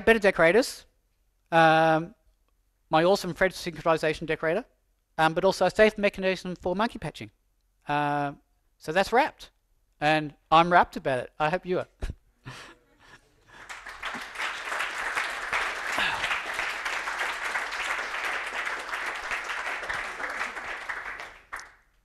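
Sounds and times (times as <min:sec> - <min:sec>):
audience applauding: 0:13.5 - 0:22.0.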